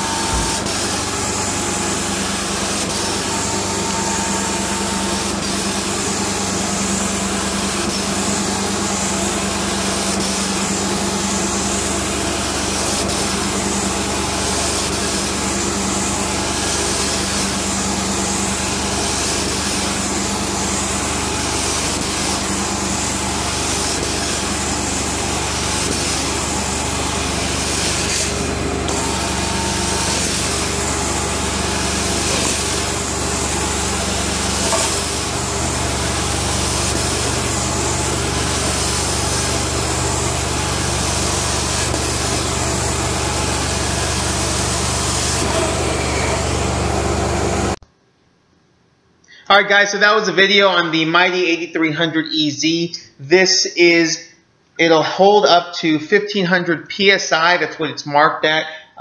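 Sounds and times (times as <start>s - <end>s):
carpet cleaning machine running: 0.0s - 47.8s
hot water spraying hiss: 0.1s - 46.4s.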